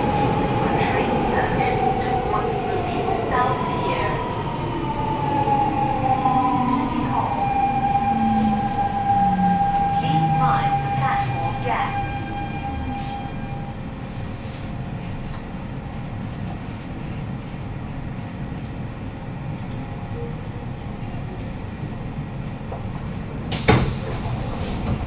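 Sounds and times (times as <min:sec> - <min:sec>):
train wheels rumbling: 0:00.0 - 0:25.0.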